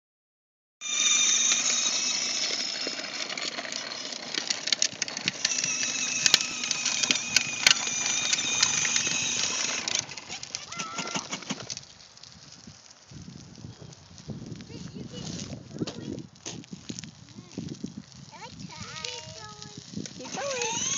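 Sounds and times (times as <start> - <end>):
electric motor whining: 0.8 - 11.8, 18.7 - 20.9
plastic wheels rattling on asphalt: 0.8 - 20.9.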